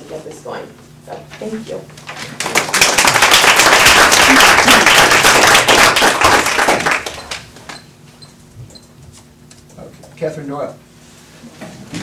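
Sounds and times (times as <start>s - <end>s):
audience applauding: 2.1s - 7.5s.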